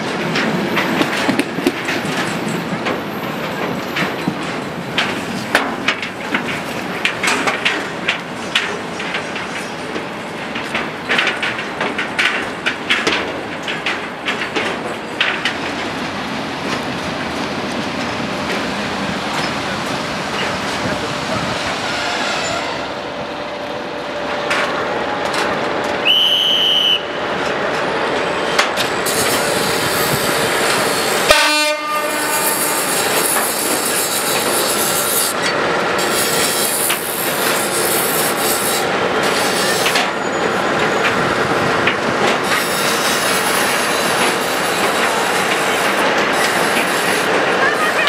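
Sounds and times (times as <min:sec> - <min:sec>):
train wheels clattering on track: 0:00.0 - 0:48.0
train horn blast: 0:31.2 - 0:32.9.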